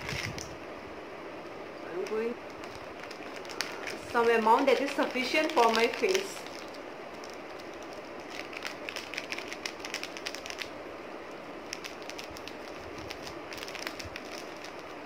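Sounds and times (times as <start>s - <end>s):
plastic pouch crinkling: 0.0s - 0.5s, 2.0s - 15.0s.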